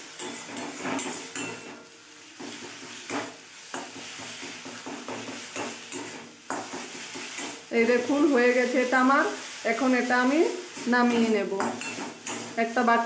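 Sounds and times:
metal spatula scraping a pan: 0:00.0 - 0:13.0
paste sizzling: 0:00.0 - 0:13.0.

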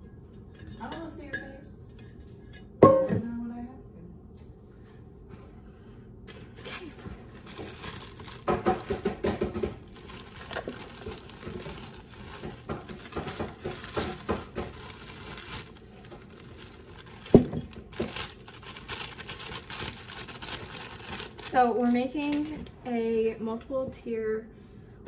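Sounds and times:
plastic bag snapping open: 0:06.3 - 0:09.0, 0:09.8 - 0:13.1, 0:13.7 - 0:22.8
plastic bag crinkling: 0:06.3 - 0:23.0.

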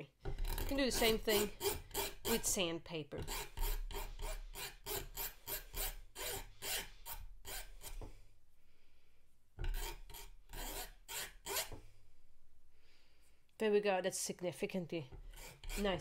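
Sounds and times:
hand file rasping on metal: 0:00.3 - 0:08.2, 0:09.6 - 0:11.8, 0:15.2 - 0:16.0.

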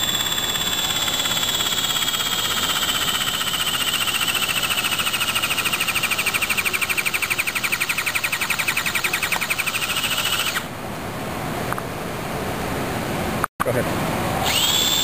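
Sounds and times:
power tool motor whine: 0:00.0 - 0:10.7, 0:14.4 - 0:15.0.

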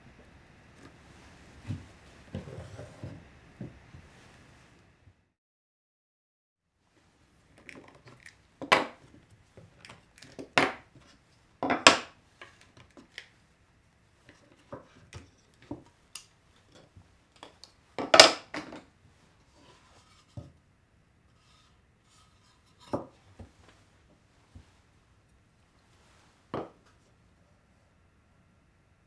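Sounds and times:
wooden knocks on workbench: 0:26.5 - 0:26.8.

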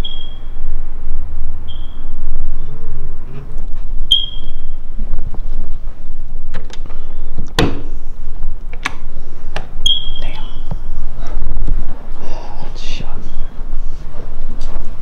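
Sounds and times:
smoke detector chirp: 0:00.0 - 0:00.6, 0:01.6 - 0:02.2, 0:04.1 - 0:04.9, 0:09.8 - 0:10.7.

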